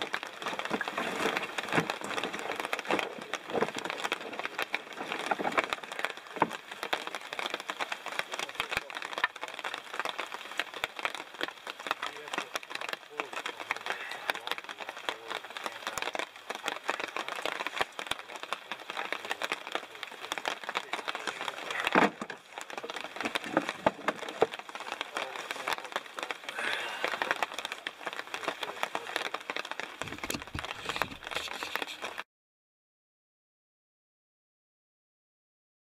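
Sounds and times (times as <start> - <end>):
light crackling and rustling: 0.0 - 32.2
firewood knocking and clattering: 0.3 - 32.0.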